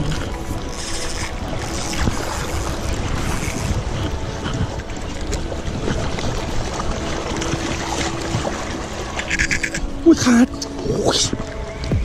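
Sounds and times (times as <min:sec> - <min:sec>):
wind buffeting microphone: 0:00.0 - 0:09.2
sea waves washing: 0:00.0 - 0:12.0.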